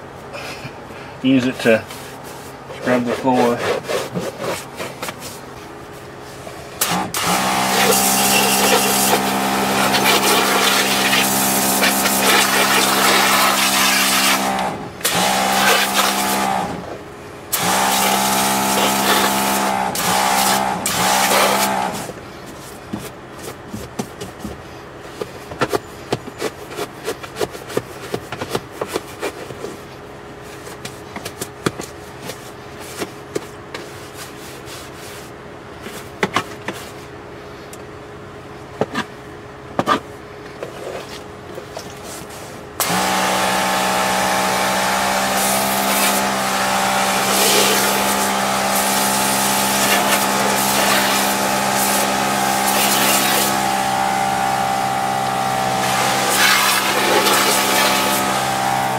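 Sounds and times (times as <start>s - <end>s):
pressure washer pump whining: 1.6s - 29.9s, 41.7s - 58.9s
brush scrubbing wet mat: 1.9s - 5.6s, 7.7s - 14.5s, 15.2s - 16.4s, 17.7s - 24.5s, 31.8s - 36.1s, 45.0s - 54.8s, 55.6s - 58.9s
water spraying on rubber mat: 7.7s - 14.5s, 44.5s - 58.9s.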